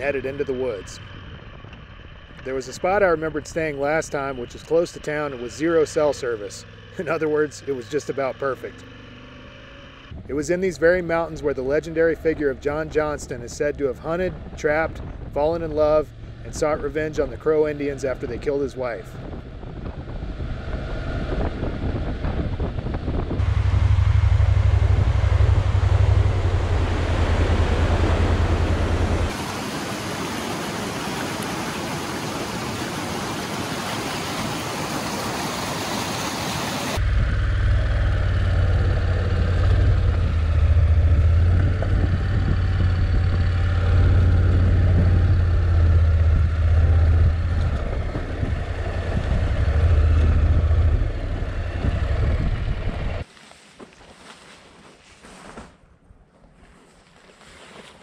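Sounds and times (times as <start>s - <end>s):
motorcycle engine rumble: 0.0s - 53.2s
wind rush on microphone: 12.7s - 17.0s, 18.3s - 53.2s.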